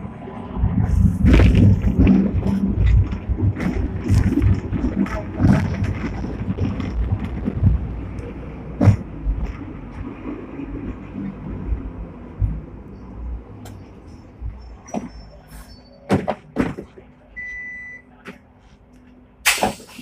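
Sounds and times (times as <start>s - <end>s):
tram rumbling on rails: 0.0s - 20.0s
wheels clattering on track: 0.8s - 17.2s.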